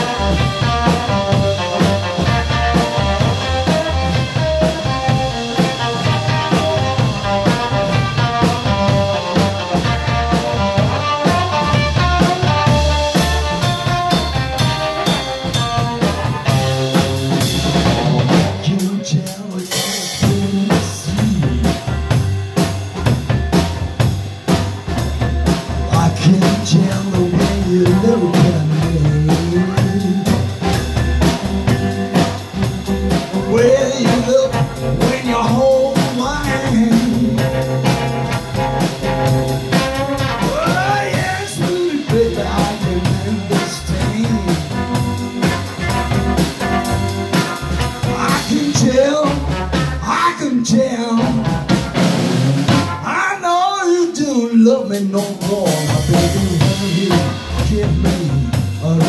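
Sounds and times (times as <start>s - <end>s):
upright double bass: 0.0s - 19.0s, 19.7s - 53.1s, 55.2s - 59.0s
electric guitar: 0.0s - 53.0s
drum kit beat: 0.0s - 59.0s
lead vocal line: 33.4s - 37.9s, 40.3s - 45.2s, 48.0s - 51.6s.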